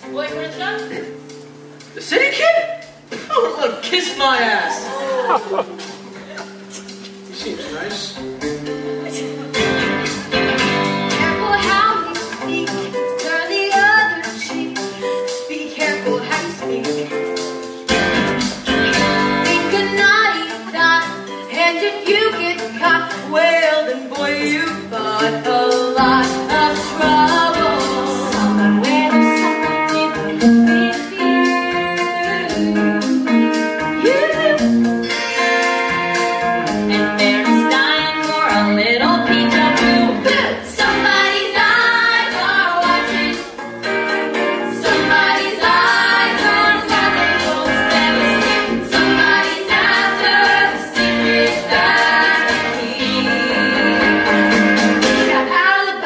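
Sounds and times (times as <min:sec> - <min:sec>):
instrumental accompaniment: 0:00.0 - 0:02.2, 0:04.9 - 0:56.0
group singing: 0:24.2 - 0:33.2, 0:36.9 - 0:56.0.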